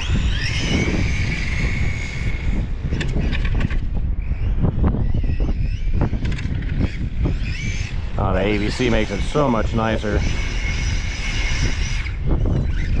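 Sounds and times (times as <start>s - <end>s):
electric motor whine: 0.0s - 13.0s
wind buffeting microphone: 0.0s - 13.0s.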